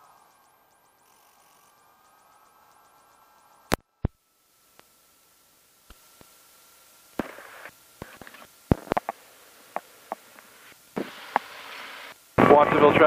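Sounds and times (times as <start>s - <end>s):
headset clicks and knocks: 8.0s - 9.2s.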